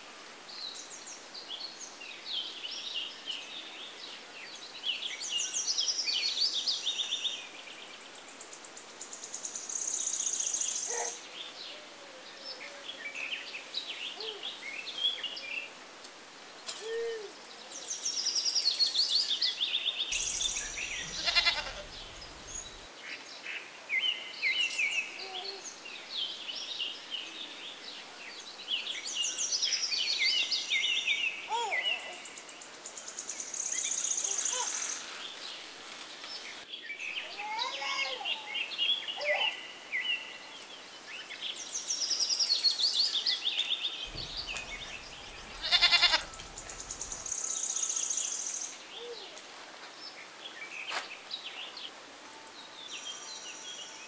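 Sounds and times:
small birds singing and chirping: 16.6 - 49.4.

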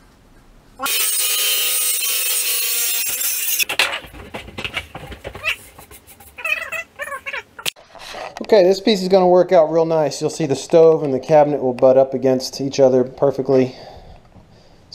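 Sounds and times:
circular saw cutting wood: 0.8 - 6.1
wood knocking and scraping: 3.6 - 8.4.

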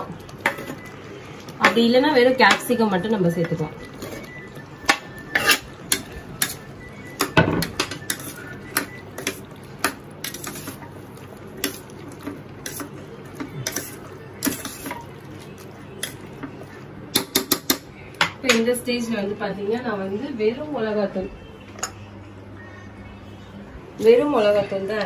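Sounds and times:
spoon scraping metal pot: 4.9 - 6.6.

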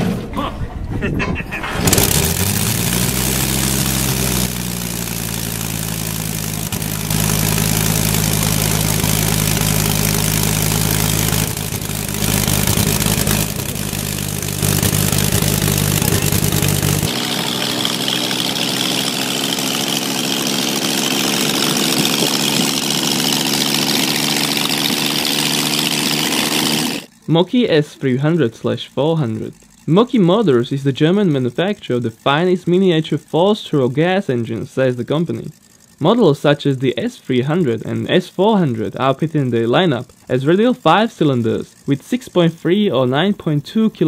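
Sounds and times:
radial motorcycle engine revving: 1.6 - 44.0
motorcycle engine riding past: 1.9 - 27.1.

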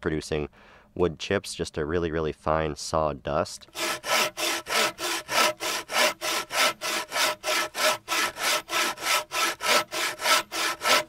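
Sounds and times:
bow saw cutting log: 3.7 - 11.0.

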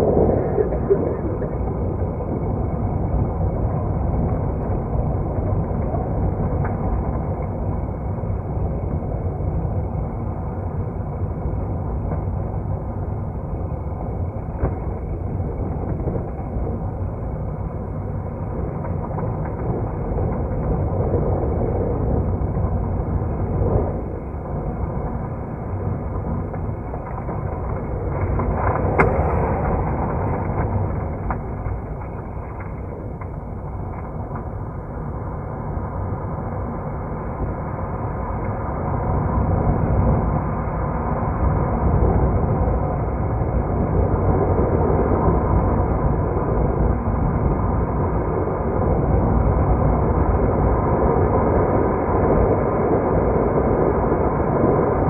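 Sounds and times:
vehicle engine rumble: 0.0 - 7.7, 11.8 - 38.0.

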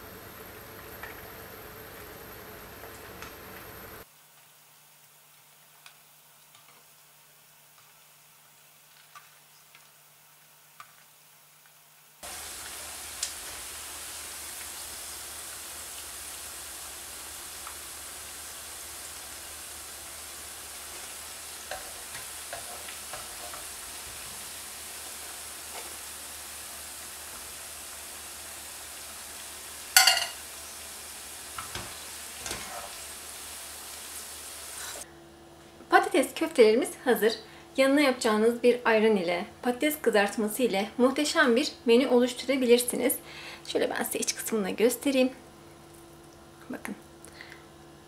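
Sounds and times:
meatballs sizzling in hot oil: 0.0 - 35.0
wire strainer clinking on pan: 30.0 - 30.4.

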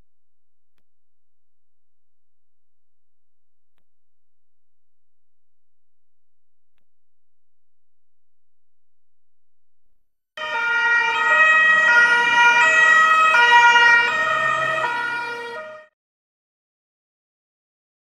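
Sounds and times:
two-tone police siren: 10.4 - 16.0.

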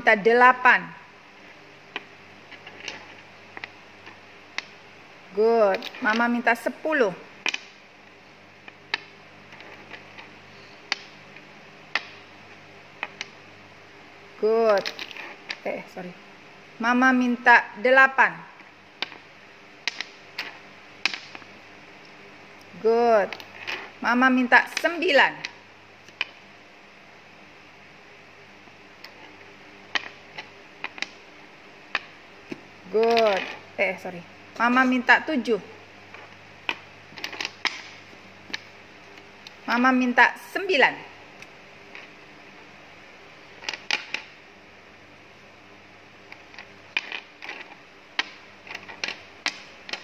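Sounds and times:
plastic cubes clicking on board: 1.9 - 4.8, 7.4 - 7.8, 10.9 - 11.1, 11.9 - 12.2, 13.0 - 13.4, 19.8 - 21.5, 29.9 - 31.2, 36.6 - 38.7, 43.6 - 44.3, 46.4 - 50.0.

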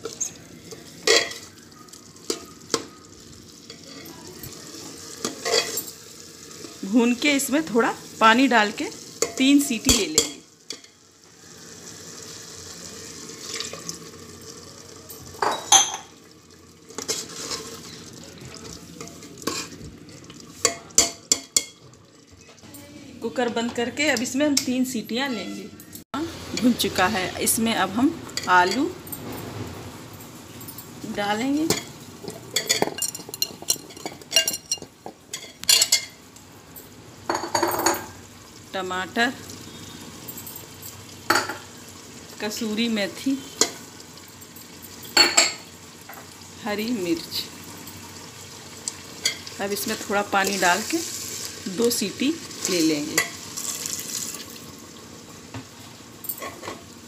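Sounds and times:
potatoes clattering into metal pot: 0.0 - 1.5, 5.1 - 6.0, 16.9 - 19.8, 31.6 - 36.2
soft sizzle: 0.0 - 57.0
metal ladle clinking pot: 1.0 - 1.5, 32.5 - 36.2.

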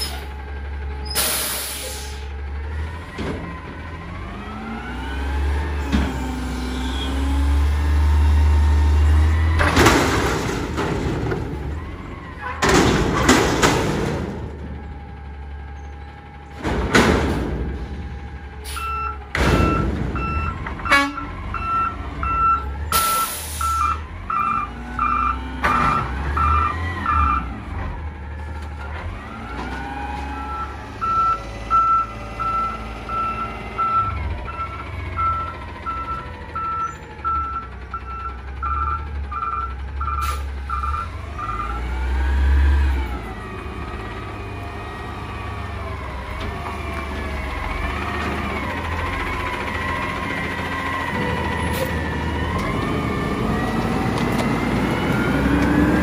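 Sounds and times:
garbage truck engine running: 0.0 - 56.0
reversing alarm beeps: 18.7 - 27.4, 30.4 - 41.8.

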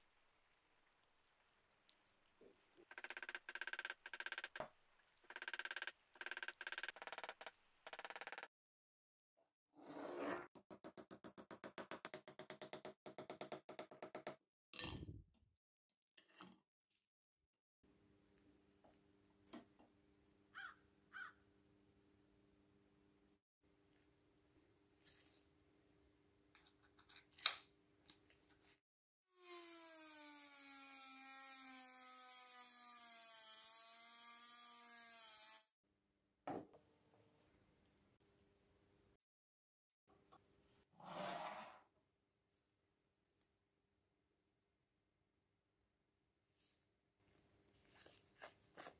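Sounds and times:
rotary tool cutting wire: 29.4 - 35.7.

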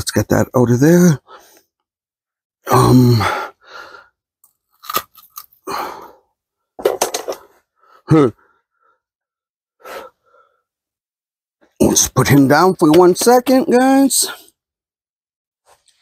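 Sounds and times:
person grunting: 2.7 - 3.4.

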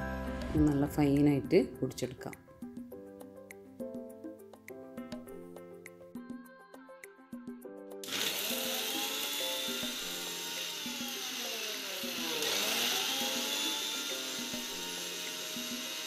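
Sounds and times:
plucked background music: 0.0 - 16.0
mixer grinder motor grinding spices: 8.0 - 16.0.

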